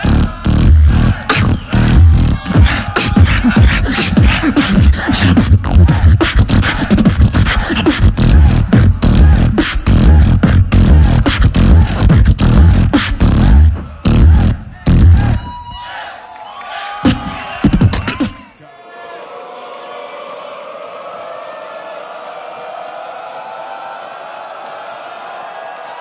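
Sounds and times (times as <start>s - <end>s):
beatboxing: 0.0s - 15.5s, 17.0s - 18.6s
gliding vocal bass line: 0.0s - 15.5s.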